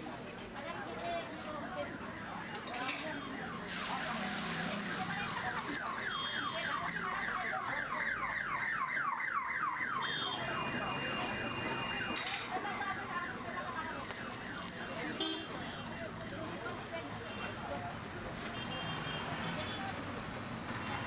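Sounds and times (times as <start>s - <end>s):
food sizzling on griddle: 3.7s - 6.9s.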